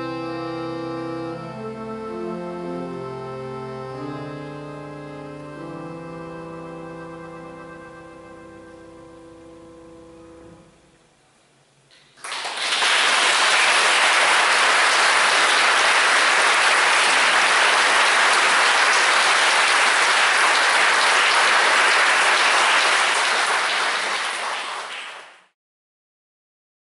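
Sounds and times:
audience applauding: 12.0 - 25.6.

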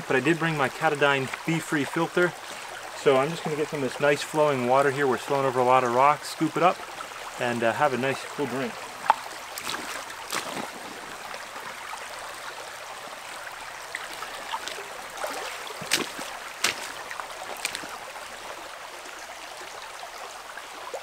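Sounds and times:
stream rushing over rocks: 0.0 - 21.0
sharp water splashes: 8.9 - 12.5, 13.4 - 18.6.

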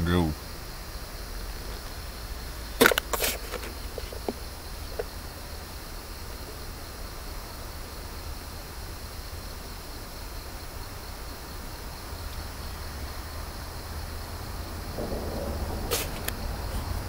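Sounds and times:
even hiss: 0.0 - 17.0
insects droning: 0.0 - 17.0
low rumble: 14.9 - 17.0
louder lower sound: 15.0 - 17.0.

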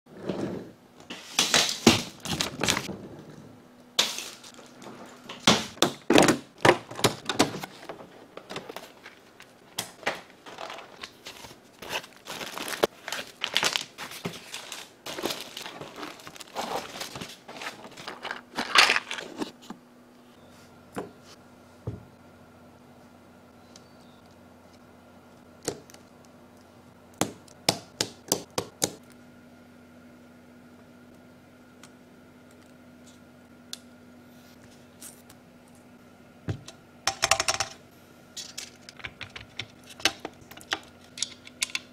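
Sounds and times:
plastic bags crinkling: 8.8 - 19.4.

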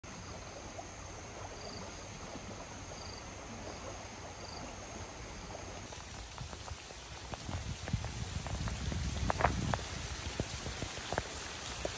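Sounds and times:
light rain hissing: 0.5 - 11.9
raindrop taps: 5.9 - 11.9.

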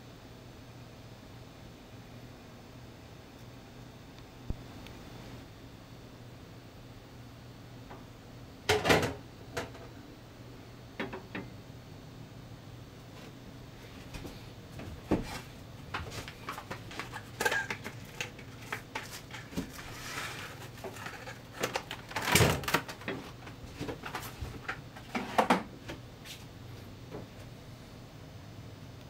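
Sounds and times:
plastic wrap crinkling: 16.1 - 24.6.

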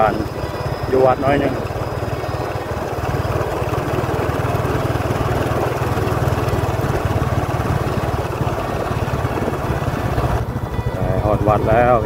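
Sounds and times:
small motorbike engine running: 0.0 - 12.0
wind and road noise: 0.0 - 12.0.

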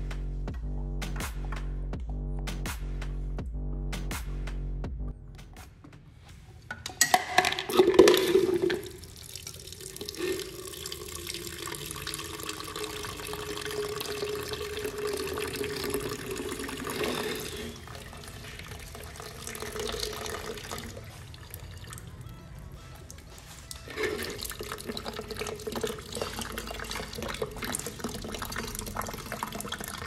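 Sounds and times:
water pouring into plastic jug: 7.2 - 22.2, 23.0 - 30.0.

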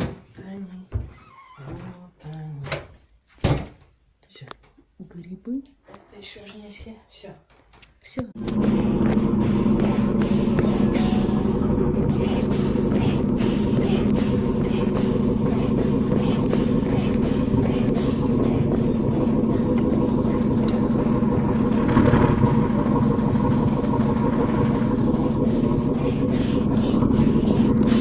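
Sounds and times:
large boat engine drone: 8.4 - 28.0.

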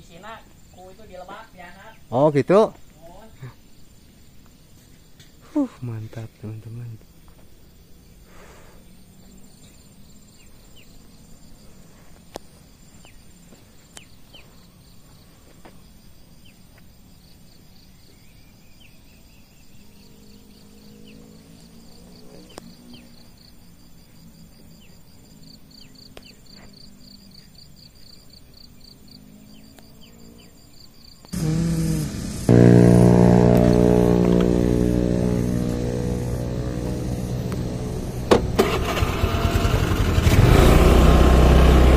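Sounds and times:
insects chirping: 0.0 - 40.9
motorcycle engine running: 31.4 - 41.9.

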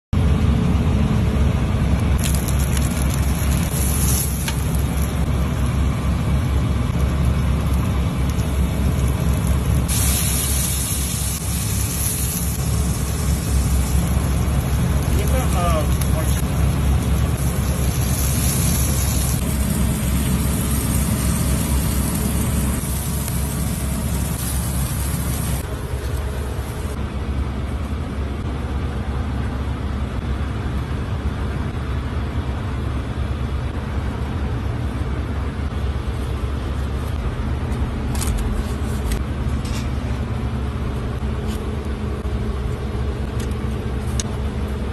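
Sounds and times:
low background rumble: 0.2 - 44.9
bright hiss: 3.4 - 5.2, 9.6 - 25.7.

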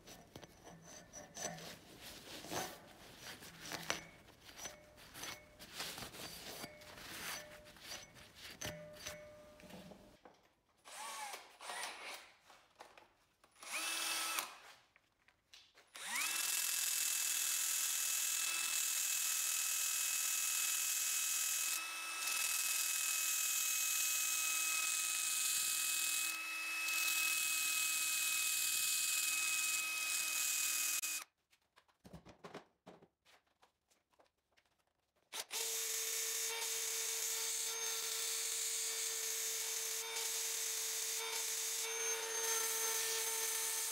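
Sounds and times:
rotary tool grinding metal: 0.0 - 9.7, 16.0 - 31.2, 35.4 - 43.9.

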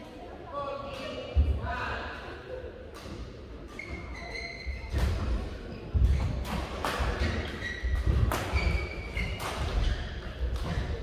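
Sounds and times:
court shoes squeaking: 3.0 - 11.0
racket hitting shuttlecock: 6.0 - 10.0.

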